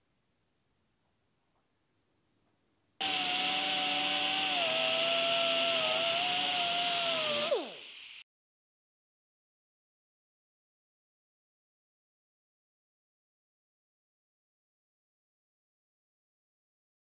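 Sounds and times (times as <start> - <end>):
air die grinder whining: 3.0 - 8.2.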